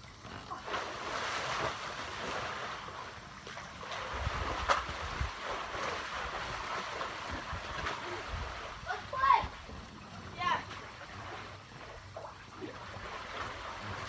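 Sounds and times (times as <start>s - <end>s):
pool water sloshing: 0.0s - 14.0s
wind on microphone: 4.0s - 10.0s.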